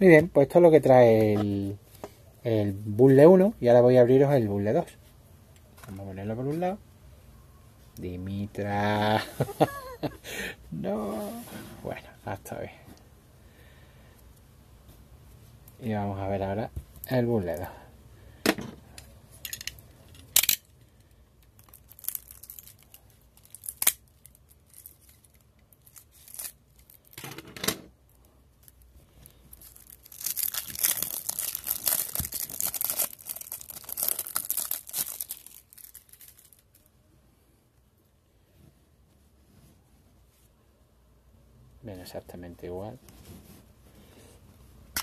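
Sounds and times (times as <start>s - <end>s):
plastic wrap crinkling: 21.4s - 27.2s, 28.1s - 36.9s.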